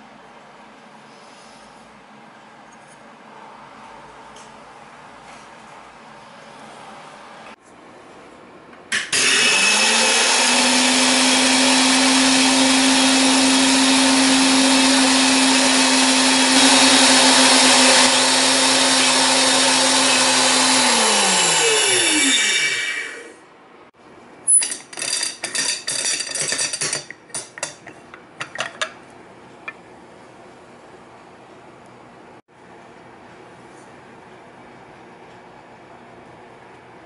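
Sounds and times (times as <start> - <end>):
grinding mill whirring: 8.9 - 23.4, 24.5 - 29.0
metal lid clicks and clatters: 24.5 - 29.0.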